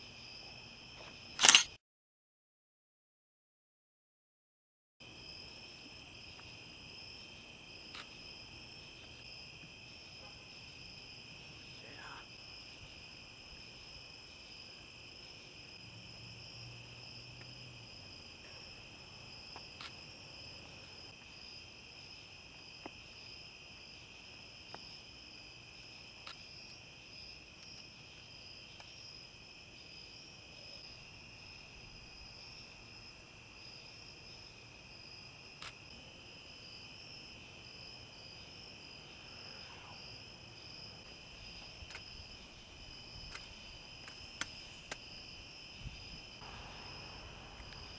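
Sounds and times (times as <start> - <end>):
sharp little clicks: 1.4 - 1.8
crickets trilling: 5.0 - 47.9.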